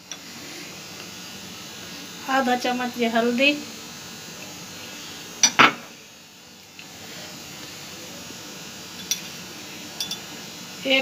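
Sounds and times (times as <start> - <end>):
spoon tapping steel bowl: 10.0 - 10.2.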